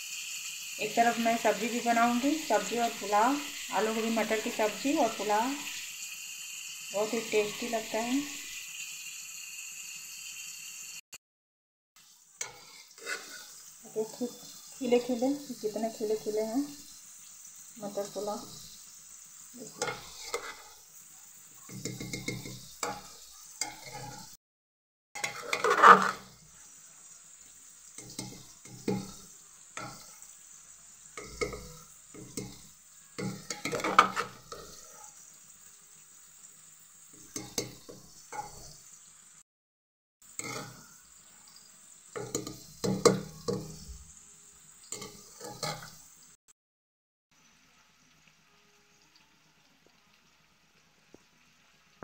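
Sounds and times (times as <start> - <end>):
metal spoon scraping in pot: 12.4 - 13.6, 19.6 - 20.8, 21.7 - 24.4, 25.2 - 26.4, 33.2 - 35.3, 37.2 - 38.8, 40.3 - 41.0, 44.9 - 46.0.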